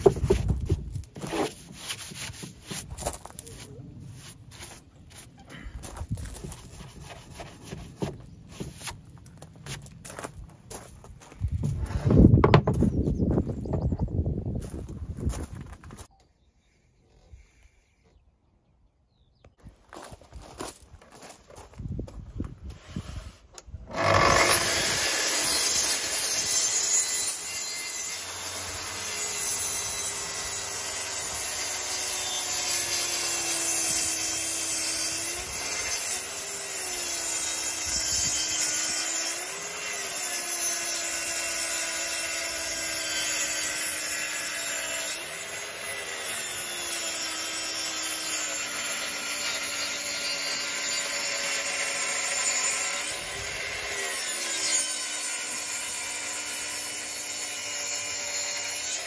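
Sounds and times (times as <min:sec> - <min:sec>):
circular saw cutting timber: 0:01.1 - 0:05.4, 0:22.7 - 0:59.0.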